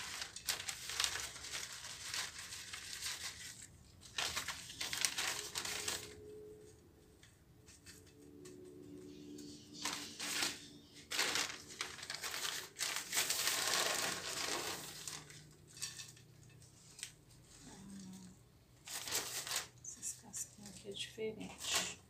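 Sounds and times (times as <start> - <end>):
husk chips rustling and crunching: 0.0 - 6.3, 9.1 - 19.8.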